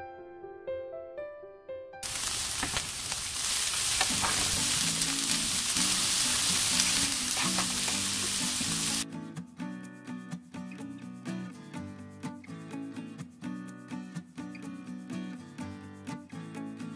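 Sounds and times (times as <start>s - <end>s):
meat sizzling in a frying pan: 2.0s - 9.0s.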